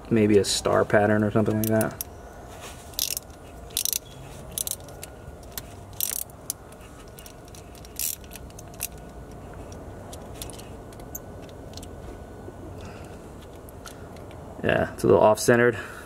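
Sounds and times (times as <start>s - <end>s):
hand ratchet clicking: 3.0s - 11.9s.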